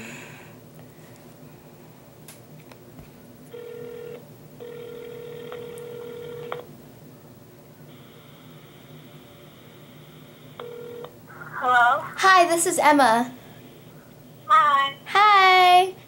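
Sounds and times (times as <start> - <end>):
phone ringback tone: 3.5 - 6.6, 10.6 - 11.1
phone speaker hiss: 7.9 - 12.4.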